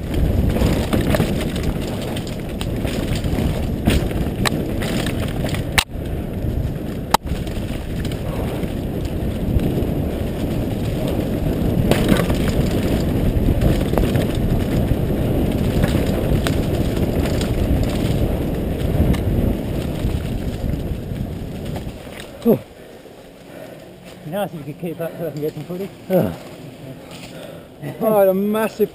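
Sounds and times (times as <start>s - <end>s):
wind on microphone: 0.0s - 22.7s
tyres rumbling on dirt: 0.0s - 28.9s.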